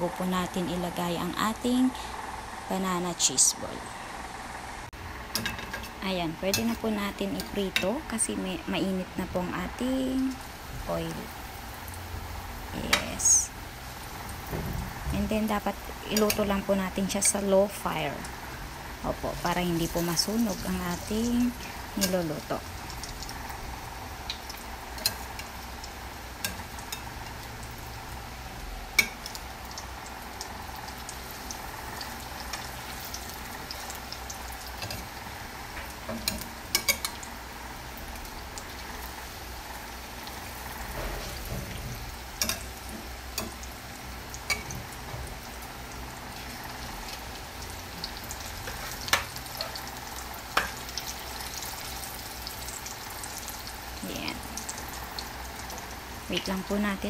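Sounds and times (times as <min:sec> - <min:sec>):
oil sizzling: 0:00.0 - 0:57.0.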